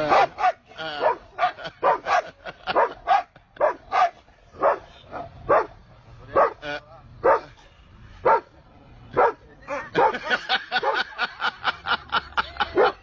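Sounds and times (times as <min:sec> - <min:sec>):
dog barking: 0:00.0 - 0:06.6, 0:07.2 - 0:07.6, 0:08.2 - 0:08.5, 0:09.2 - 0:09.4, 0:10.0 - 0:11.1.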